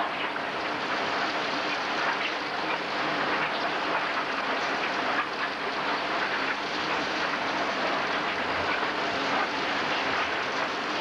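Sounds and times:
mixer and conveyor clattering: 0:00.0 - 0:11.0.

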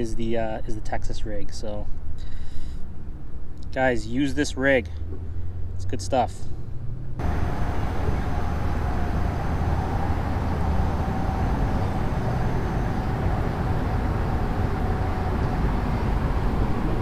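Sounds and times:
low outdoor rumble: 0:00.0 - 0:17.0
faint steady hum: 0:07.2 - 0:17.0.

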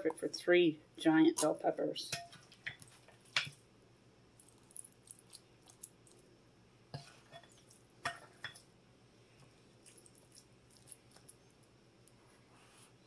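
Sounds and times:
scoop tapping and squishing meat: 0:01.4 - 0:03.7, 0:04.4 - 0:06.3, 0:06.9 - 0:08.7, 0:09.4 - 0:11.4.

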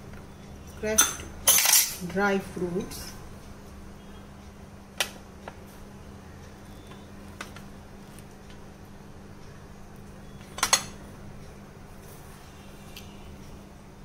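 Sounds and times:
steady low hum: 0:00.0 - 0:14.0
ceramic bowls clinking on a plate: 0:00.9 - 0:02.0.

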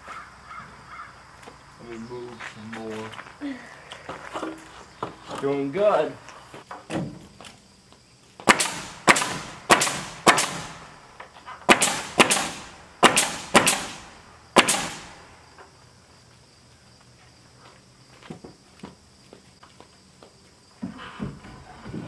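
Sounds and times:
nail gun firing into wood: 0:08.4 - 0:10.9, 0:11.6 - 0:15.2.

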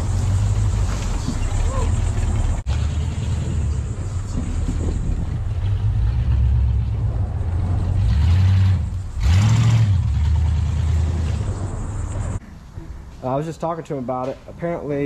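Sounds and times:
truck engine revving: 0:00.0 - 0:12.4.

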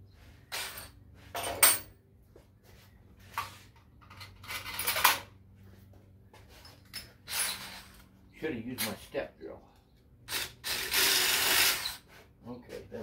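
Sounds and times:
metal parts clinking on workbench: 0:00.6 - 0:01.9.

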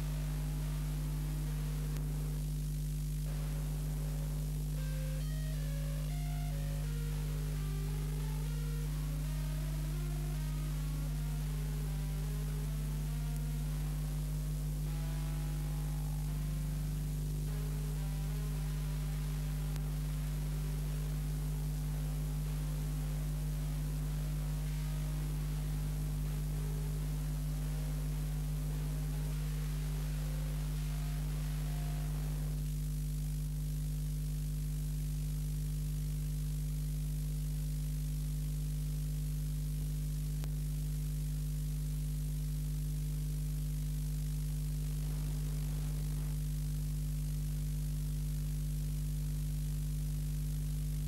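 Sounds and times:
faint music: 0:00.0 - 0:33.0, 0:44.7 - 0:47.4
electrical mains hum with hiss: 0:00.0 - 0:51.0.

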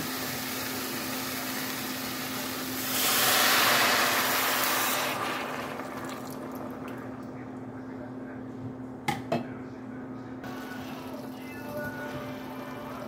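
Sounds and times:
broth pouring into a pot: 0:00.3 - 0:07.2
steady low hum: 0:05.9 - 0:13.0.

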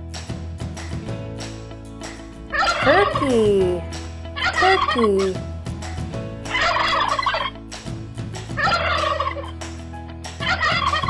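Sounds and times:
turkey gobbling: 0:08.6 - 0:09.5, 0:10.5 - 0:11.0.

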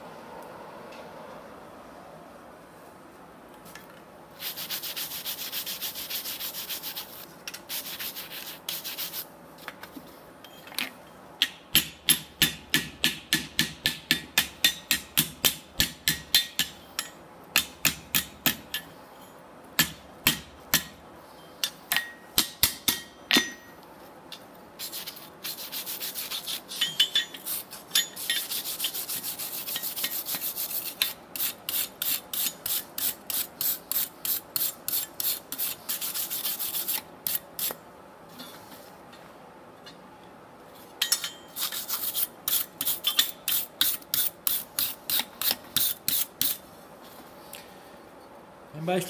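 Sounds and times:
hammer striking hot steel on anvil: 0:11.4 - 0:18.9, 0:19.8 - 0:21.0, 0:21.6 - 0:23.7
wire brush scraping metal: 0:24.8 - 0:37.8, 0:41.6 - 0:46.6.

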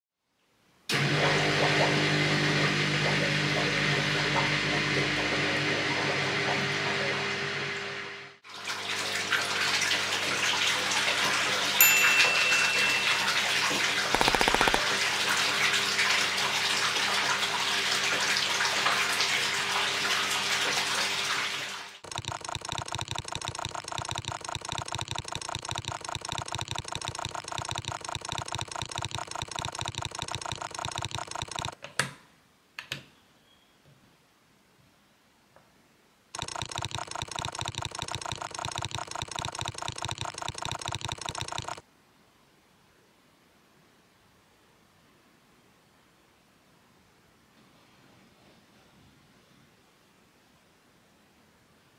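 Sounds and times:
pump hum: 0:00.9 - 0:31.8, 0:36.4 - 0:41.8
fast even rattling: 0:36.4 - 0:41.8.

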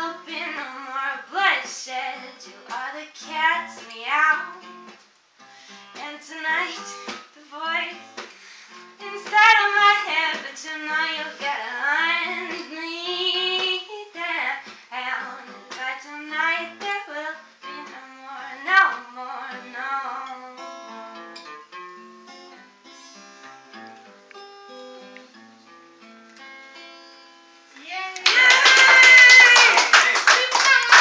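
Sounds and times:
acoustic guitar: 0:00.0 - 0:28.2
loud clapping: 0:28.0 - 0:31.0.

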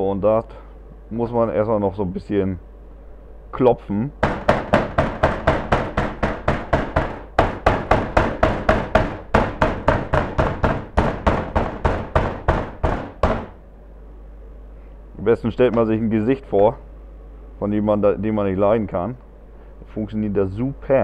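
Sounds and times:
meat pounded on wooden board: 0:04.2 - 0:13.6.

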